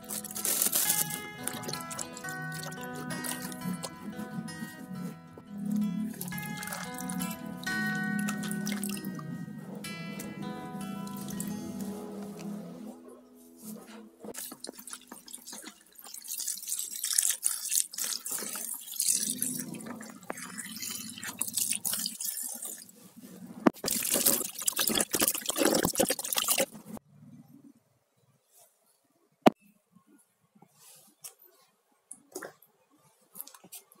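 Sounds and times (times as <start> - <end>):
water splashing and dripping: 14.4 - 22.9, 23.8 - 27.0.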